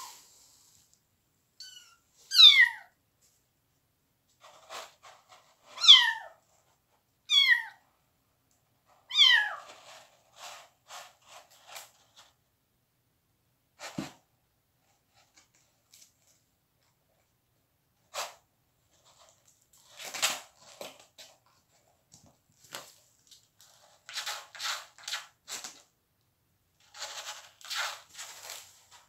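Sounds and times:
paws scratching in cat litter: 18.1s - 25.9s, 26.8s - 29.0s.

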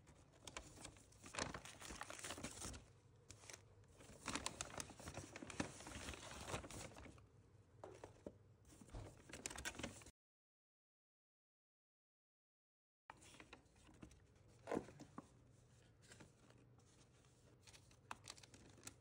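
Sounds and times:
paper bag and wrapper rustling: 0.1s - 7.2s, 15.8s - 19.0s.

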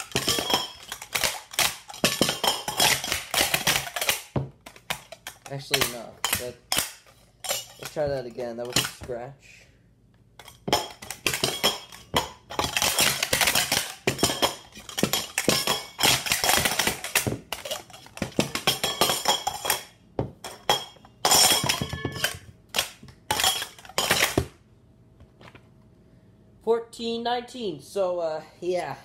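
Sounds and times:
metal cups clattering and clinking: 0.0s - 9.1s, 10.4s - 24.5s.

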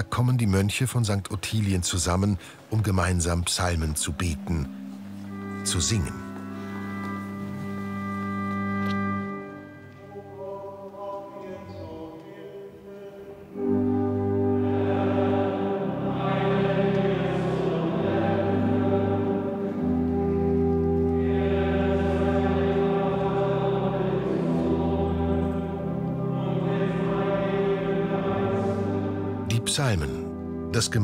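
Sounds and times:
low organ notes: 0.0s - 31.0s
male chorus chanting: 10.0s - 30.2s.

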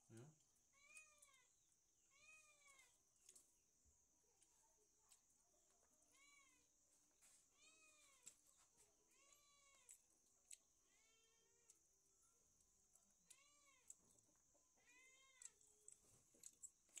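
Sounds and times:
cat meowing: 7.6s - 8.2s, 9.1s - 9.9s, 10.9s - 11.6s, 13.3s - 14.0s, 14.8s - 15.6s.

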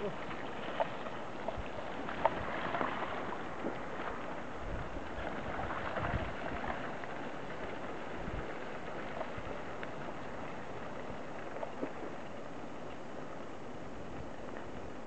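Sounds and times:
wind buffeting microphone: 0.0s - 10.8s
tyres rolling over gravel: 0.0s - 13.4s
light clicks from bikes: 0.0s - 15.0s.

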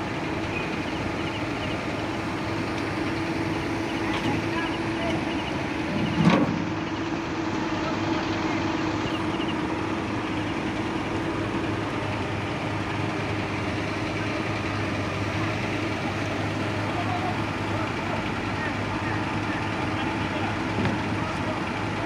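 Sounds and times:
diesel engine idling: 0.0s - 22.0s.

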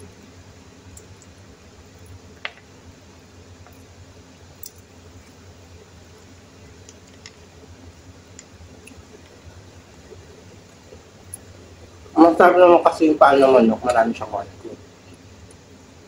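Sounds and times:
low steady hum: 0.0s - 16.0s
soft chewing: 4.6s - 12.1s.

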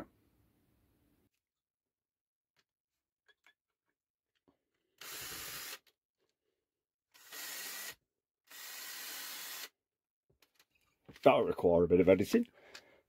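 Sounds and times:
drill drilling circuit board: 5.0s - 5.9s, 7.1s - 9.8s.

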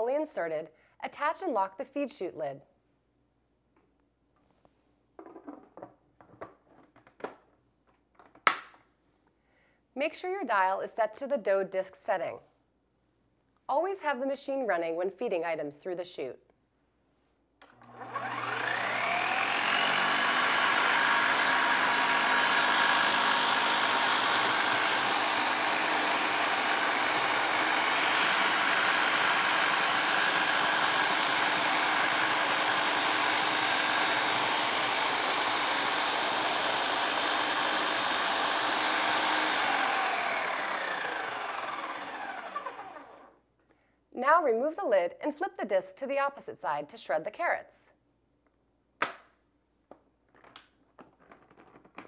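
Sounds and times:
food processor motor whining: 17.7s - 43.4s.

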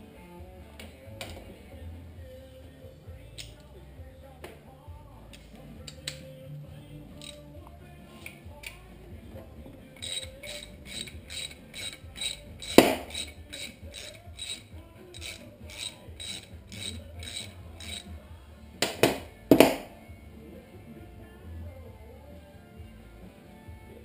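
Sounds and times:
socket ratchet clicking: 3.4s - 3.7s, 5.3s - 6.3s, 7.2s - 7.5s, 10.0s - 18.2s.

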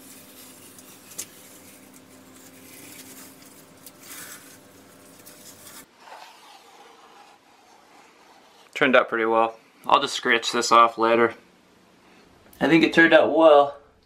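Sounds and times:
tape peeling and tearing: 0.0s - 7.1s.

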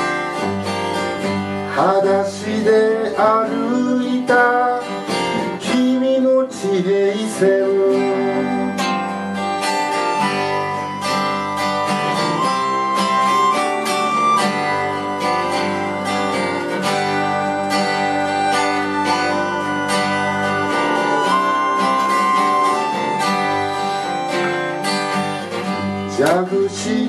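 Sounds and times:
acoustic guitar strummed: 0.0s - 27.0s
melodica holding long notes: 7.9s - 26.1s.

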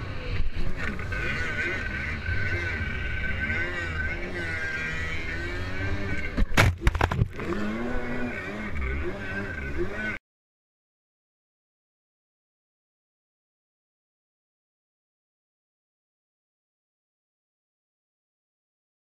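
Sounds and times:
jet ski engine running: 0.0s - 10.2s.

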